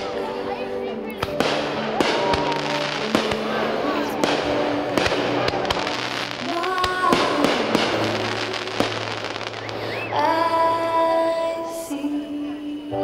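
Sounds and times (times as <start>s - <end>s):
music playing: 0.0s - 13.0s
fireworks bangs and crackles: 1.2s - 10.4s.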